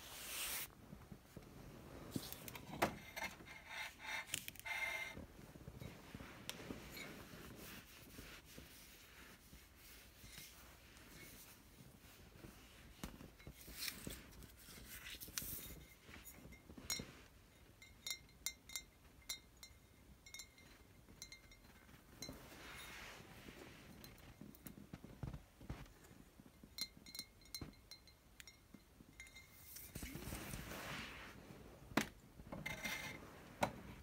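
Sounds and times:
bottles rubbing and sliding: 0.0s - 0.8s, 1.7s - 16.6s, 22.2s - 24.1s, 29.5s - 31.8s.

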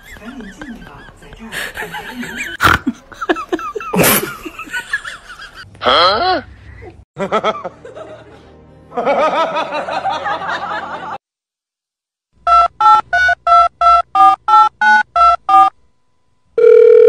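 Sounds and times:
dial tone: 16.6s - 17.0s
telephone keypad tones: 16.6s - 17.0s.

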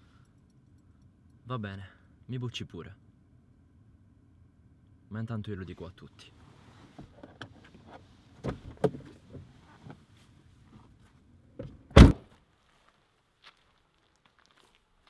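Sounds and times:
door slamming shut: 11.9s - 12.2s.

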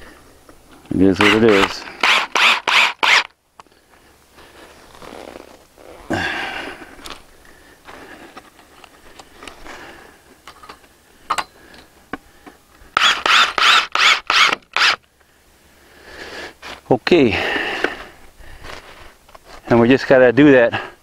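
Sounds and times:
cordless drill driving screw: 1.2s - 3.3s, 13.0s - 15.0s
scrape: 18.6s - 19.6s.

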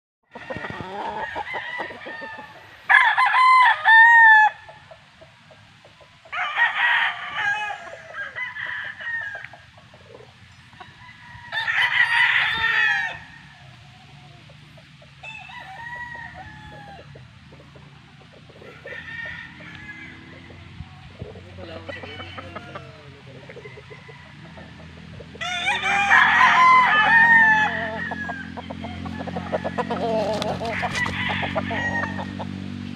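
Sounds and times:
roosters crowing: 0.3s - 32.9s.

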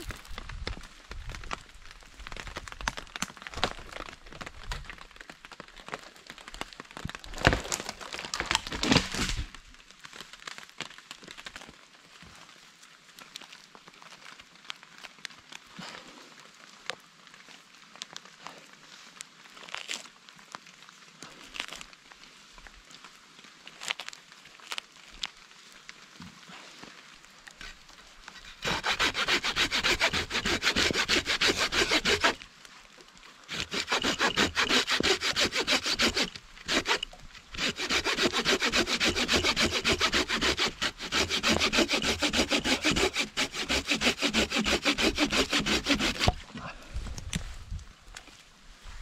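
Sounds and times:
hand saw cutting log: 8.4s - 9.4s, 28.4s - 32.4s, 33.5s - 46.5s.

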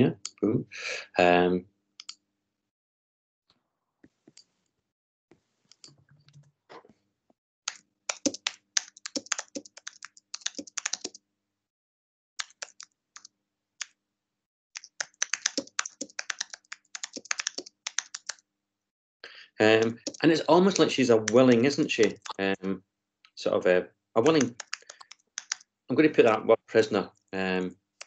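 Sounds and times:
typing on a keyboard: 7.7s - 11.2s, 12.4s - 13.3s, 14.8s - 18.4s, 19.8s - 22.4s, 24.2s - 25.6s.

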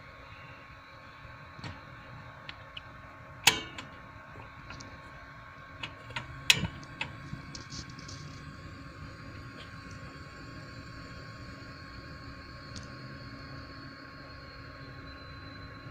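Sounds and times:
gas flame burning: 0.0s - 15.9s
piezo igniter snapping: 2.4s - 4.0s, 5.8s - 7.9s.

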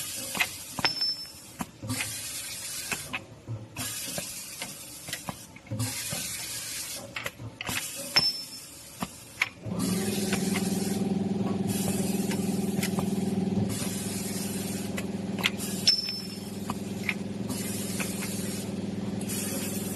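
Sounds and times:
pneumatic grippers clacking: 0.0s - 19.9s
compressed air hissing: 9.2s - 19.9s
motor humming: 9.7s - 19.9s.

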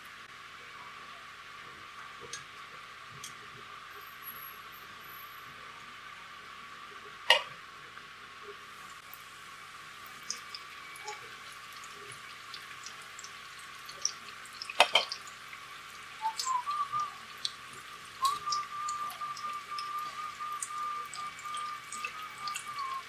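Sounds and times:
oil sizzling with small pops: 0.0s - 23.0s
thin high whistling tone: 16.2s - 17.3s, 18.2s - 23.0s.

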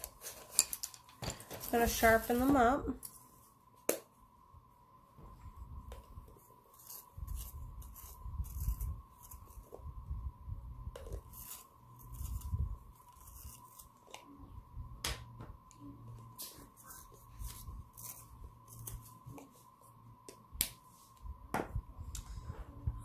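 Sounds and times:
pencil sharpener scraping: 6.7s - 9.7s.

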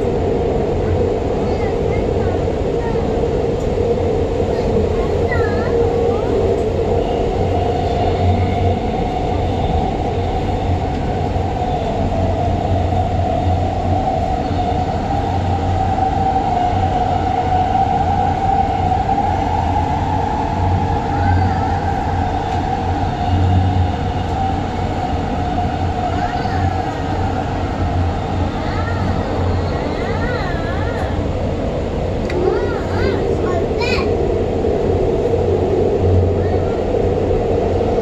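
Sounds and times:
constant high whine: 0.0s - 38.0s
subway train rumbling: 0.0s - 38.0s.

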